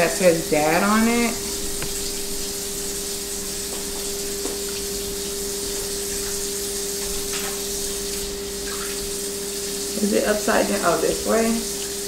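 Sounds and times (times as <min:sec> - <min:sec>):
tap running into sink: 0:01.0 - 0:09.1.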